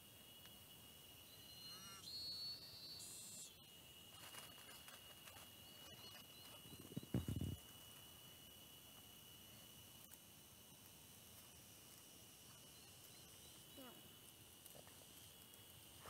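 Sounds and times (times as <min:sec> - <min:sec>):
insects buzzing: 0:00.0 - 0:16.0
bird-like chirps: 0:01.2 - 0:07.6
low thumps and rustling: 0:06.8 - 0:07.7.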